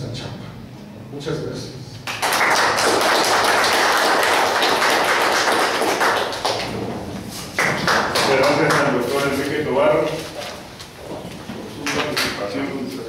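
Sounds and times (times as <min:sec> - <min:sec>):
audience applauding: 0:02.1 - 0:06.8, 0:07.5 - 0:08.9.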